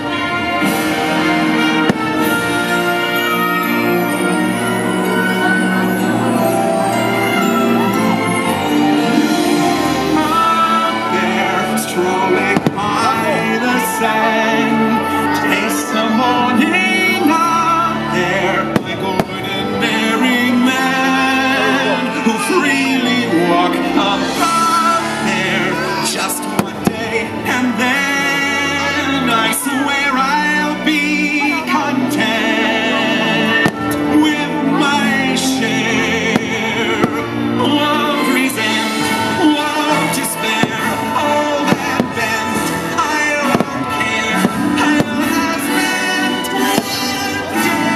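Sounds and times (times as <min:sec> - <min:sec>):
show music with singing: 0:00.0 - 0:47.9
firework bangs: 0:00.8 - 0:03.1, 0:11.7 - 0:14.0, 0:18.7 - 0:20.6, 0:26.4 - 0:27.4, 0:36.3 - 0:37.6, 0:38.8 - 0:47.9.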